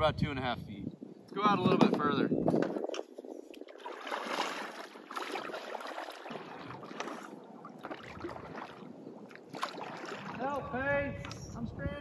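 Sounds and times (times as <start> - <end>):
paddle splashing in water: 2.7 - 10.8.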